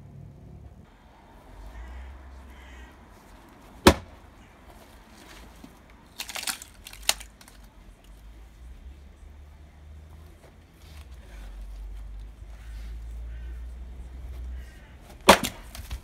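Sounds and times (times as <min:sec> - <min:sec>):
axe striking log: 0:03.8 - 0:04.2, 0:15.2 - 0:16.0.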